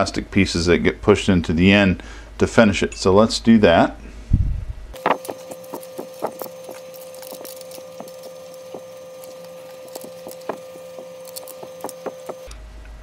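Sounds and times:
thin steady hum: 4.5 - 12.6.

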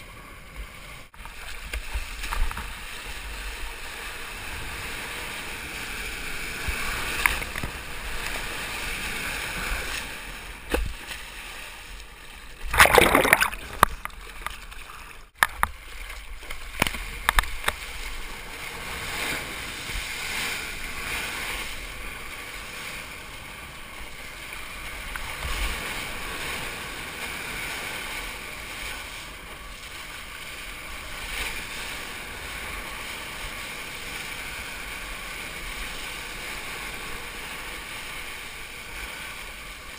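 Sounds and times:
ocean water rushing: 0.0 - 39.9
loud splash: 12.6 - 14.2.

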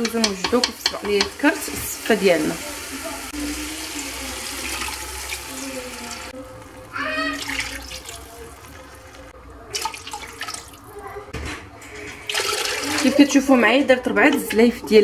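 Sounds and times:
water pouring into a pot: 1.2 - 11.0, 12.2 - 13.2.

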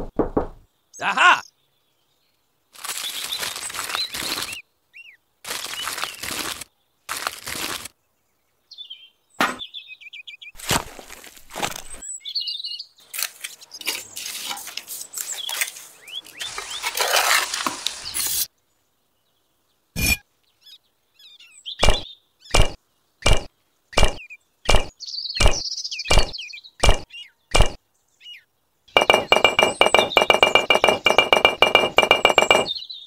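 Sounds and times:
birds chirping: 0.0 - 10.7, 15.0 - 17.3, 18.0 - 33.0
thin sheet scraping and rustling: 5.5 - 7.9, 13.2 - 18.5.

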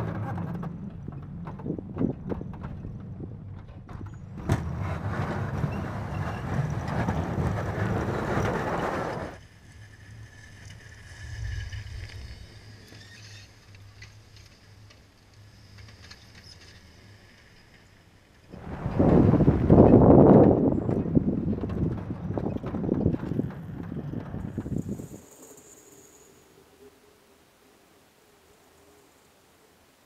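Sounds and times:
loud rush of plowing snow: 4.5 - 9.4, 18.5 - 22.4.

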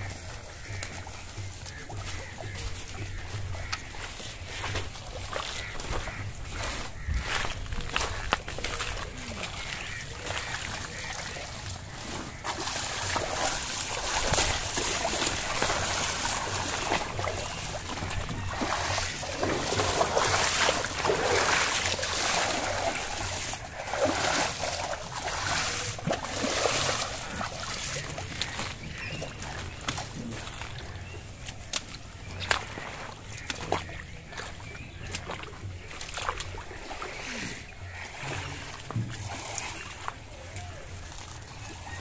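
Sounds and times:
hands splashing in muddy water: 0.0 - 41.8.

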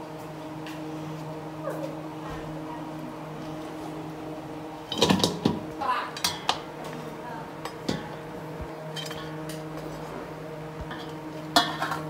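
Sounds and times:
steady low hum: 0.0 - 12.0
metal skimmer clinking on steel basin: 6.2 - 6.6, 10.9 - 12.0.

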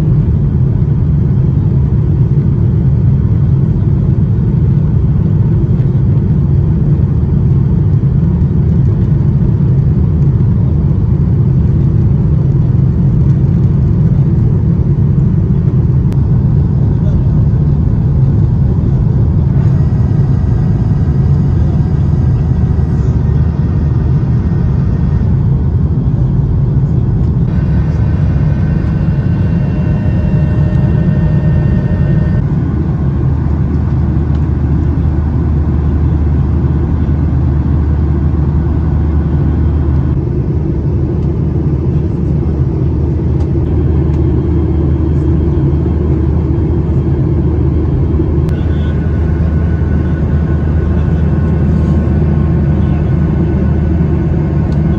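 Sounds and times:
airplane cabin engine rumble: 0.0 - 54.9
faint high tones: 27.5 - 32.4.

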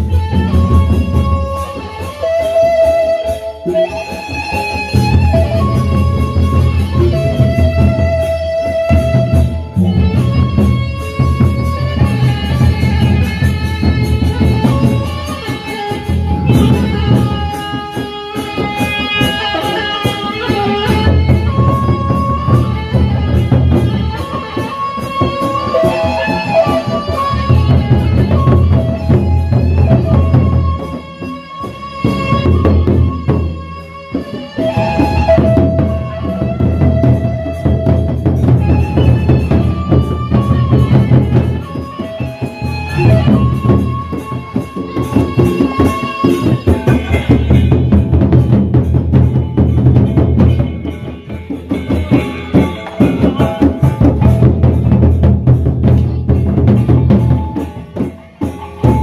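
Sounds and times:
held melody line: 0.0 - 59.0
barrel drums beaten with sticks: 34.2 - 59.0.

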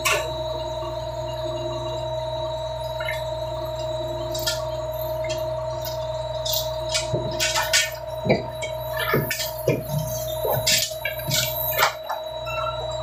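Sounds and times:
boat engine and machinery humming: 0.0 - 13.0.

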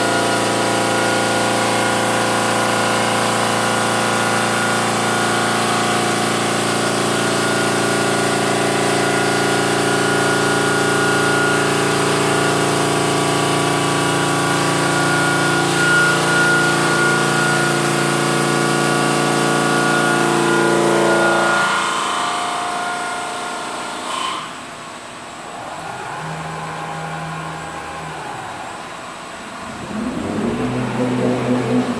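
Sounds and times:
stone saw whining: 0.0 - 31.9.

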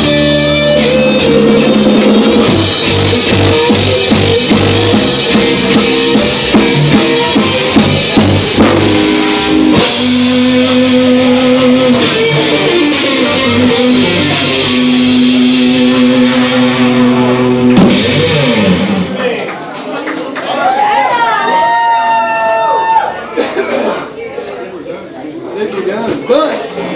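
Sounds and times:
live rock band playing: 0.0 - 19.4.

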